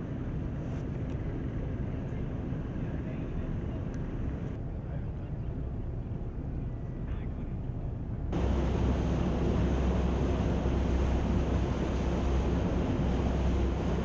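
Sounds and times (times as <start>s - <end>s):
steady low hum: 0.0s - 14.0s
wind buffeting microphone: 7.6s - 14.0s
boat engine running: 8.3s - 14.0s
water rushing: 8.4s - 14.0s.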